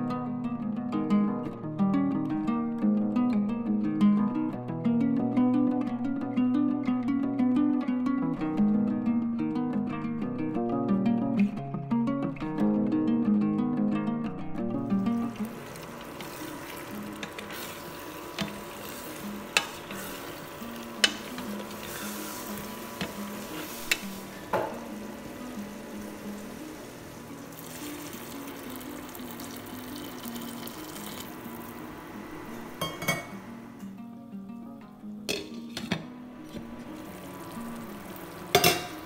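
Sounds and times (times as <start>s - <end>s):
vegetables sizzling: 14.8s - 34.0s, 35.3s - 39.0s.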